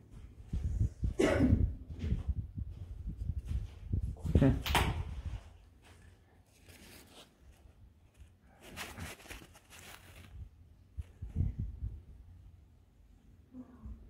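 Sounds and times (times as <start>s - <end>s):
paper rustling and crinkling: 5.8s - 11.3s.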